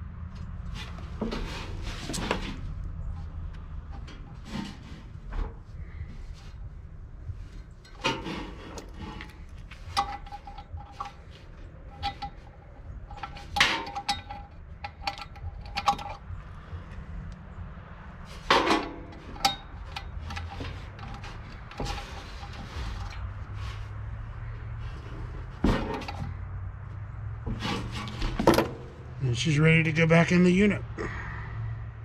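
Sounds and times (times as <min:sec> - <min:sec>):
hand tool clinking on metal: 0:07.8 - 0:16.2.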